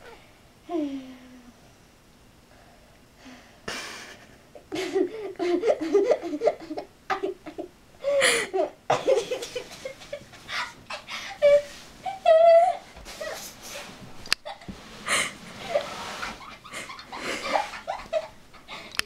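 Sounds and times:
person laughing hard: 0:03.7 - 0:12.7, 0:14.4 - 0:19.0.

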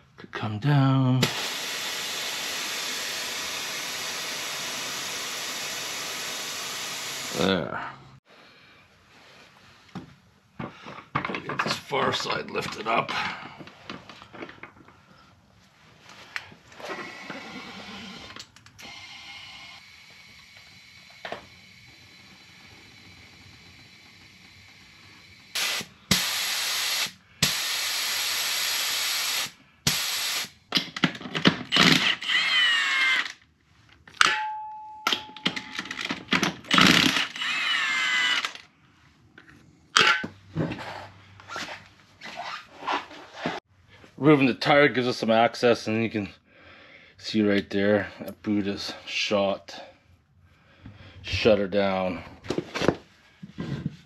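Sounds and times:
pneumatic impact wrench bursts: 0:01.2 - 0:07.6, 0:16.8 - 0:30.8, 0:31.6 - 0:33.4, 0:36.6 - 0:38.6
loud air noise: 0:19.7 - 0:30.6.

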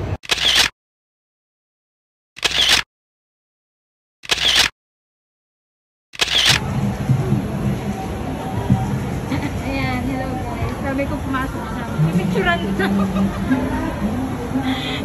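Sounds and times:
camera shutter clicking: 0:00.2 - 0:00.7, 0:02.4 - 0:02.9, 0:04.2 - 0:04.7, 0:06.2 - 0:06.6.

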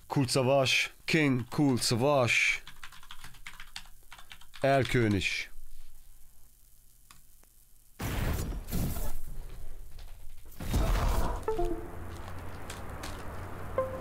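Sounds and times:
slow melody notes: 0:11.5 - 0:12.3, 0:13.7 - 0:14.0.

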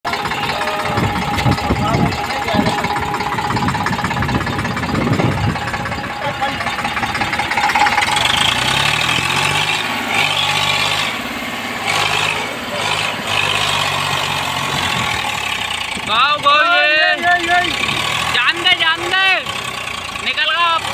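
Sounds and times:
tractor engine under load: 0:00.0 - 0:20.9.

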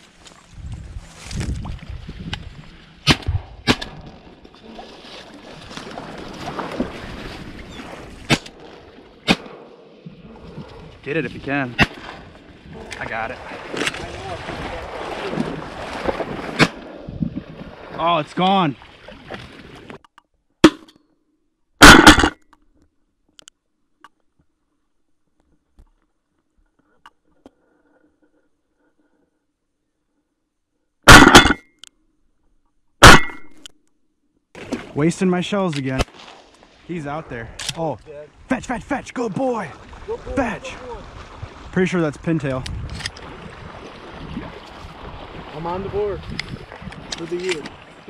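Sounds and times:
rustle of dry corn stalks: 0:00.0 - 0:03.1, 0:35.8 - 0:37.0
wind: 0:00.0 - 0:48.0
shotgun shots: 0:09.2 - 0:09.8, 0:21.8 - 0:22.4, 0:31.1 - 0:31.6, 0:33.0 - 0:33.5.

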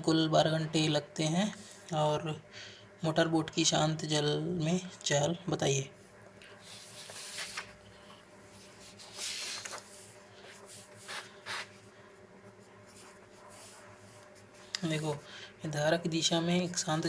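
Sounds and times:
faint steady hum: 0:00.0 - 0:17.0
paper rustling: 0:06.4 - 0:11.8
pen scratching on paper: 0:10.7 - 0:11.8.

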